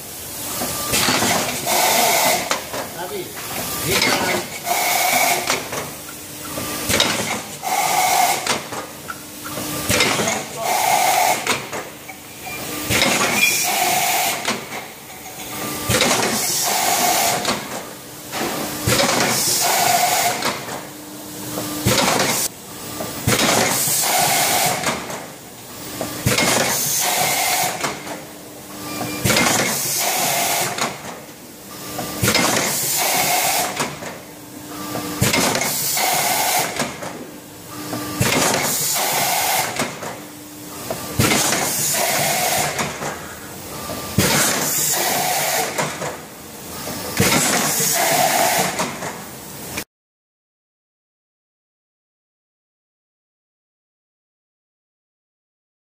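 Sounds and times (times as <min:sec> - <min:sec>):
pneumatic air hissing: 0:00.5 - 0:02.6, 0:03.6 - 0:05.7, 0:06.8 - 0:11.7, 0:12.9 - 0:14.7, 0:16.2 - 0:17.6, 0:19.2 - 0:20.6, 0:23.5 - 0:25.1, 0:26.6 - 0:28.0, 0:29.2 - 0:30.8, 0:32.2 - 0:34.0, 0:35.2 - 0:37.0, 0:38.2 - 0:40.0, 0:41.2 - 0:43.5, 0:44.2 - 0:45.9, 0:47.2 - 0:48.9
machine clicks and clanks: 0:00.9 - 0:07.6, 0:08.3 - 0:10.6, 0:11.2 - 0:20.8, 0:21.6 - 0:25.3, 0:26.0 - 0:28.2, 0:29.0 - 0:31.3, 0:32.0 - 0:34.2, 0:34.9 - 0:37.2, 0:37.9 - 0:40.2, 0:40.8 - 0:43.2, 0:43.8 - 0:46.2, 0:46.8 - 0:49.2.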